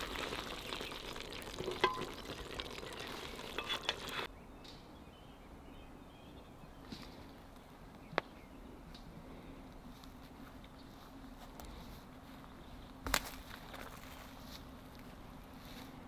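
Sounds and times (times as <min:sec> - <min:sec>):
faint outdoor background: 0:00.0 - 0:16.0.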